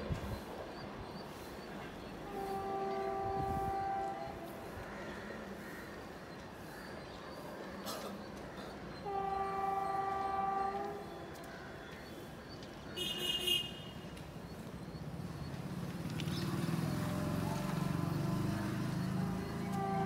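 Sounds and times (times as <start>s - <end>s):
train rumble: 0.0s - 13.1s, 14.0s - 20.0s
train horn blast: 2.3s - 4.8s, 9.0s - 11.4s, 17.3s - 20.0s.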